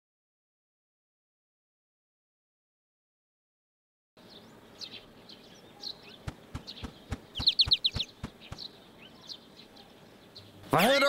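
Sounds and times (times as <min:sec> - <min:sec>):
cartoon bird chirping: 0:05.8 - 0:08.7
sharp knocks or taps: 0:06.3 - 0:08.7.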